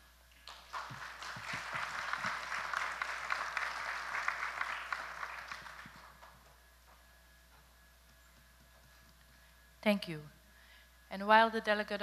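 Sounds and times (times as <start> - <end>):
audience applauding: 0.4 - 6.6.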